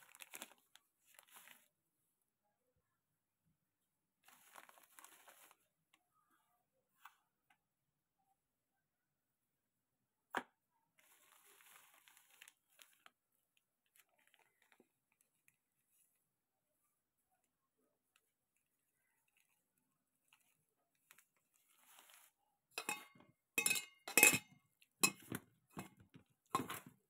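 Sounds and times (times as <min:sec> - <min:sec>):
plastic packaging crinkling: 0:00.0 - 0:01.7, 0:04.2 - 0:05.6, 0:11.0 - 0:13.2, 0:13.8 - 0:15.6, 0:20.4 - 0:22.4.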